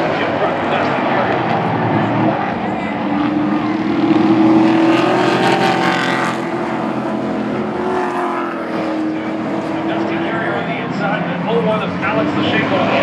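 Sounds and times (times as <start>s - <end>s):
race truck engines passing: 0.0s - 13.0s.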